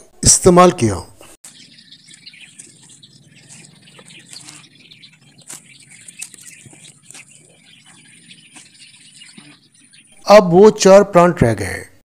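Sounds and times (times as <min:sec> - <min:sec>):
dry leaves and roots rustling: 0:01.5 - 0:09.6.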